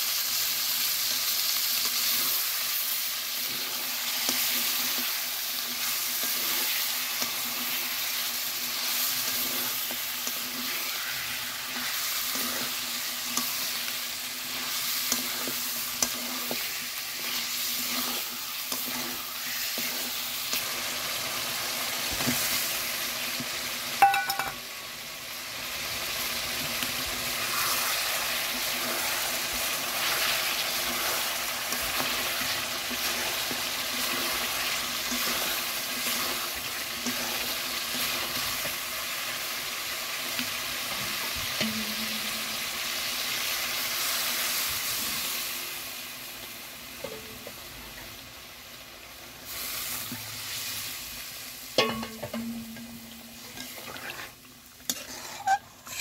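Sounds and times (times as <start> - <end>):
curry sizzling in a pan: 0.0 - 56.0
metal spatula scraping pan: 1.7 - 22.7, 26.9 - 39.3, 51.8 - 56.0
metal clank on pan: 24.0 - 24.6, 41.6 - 42.5, 47.0 - 47.6, 51.8 - 53.9.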